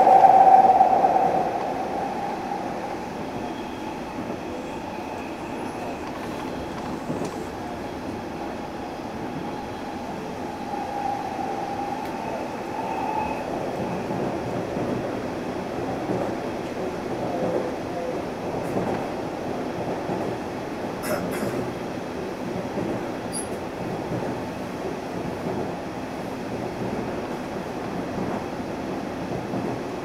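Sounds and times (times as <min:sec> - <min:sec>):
faint high whine: 0:00.0 - 0:06.1
train wheels rumbling on rail: 0:00.0 - 0:30.0.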